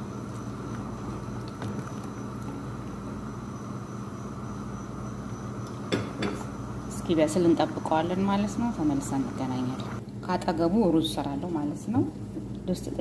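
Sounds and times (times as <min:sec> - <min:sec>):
stew simmering in pot: 0:00.0 - 0:05.9
steady low hum: 0:00.0 - 0:13.0.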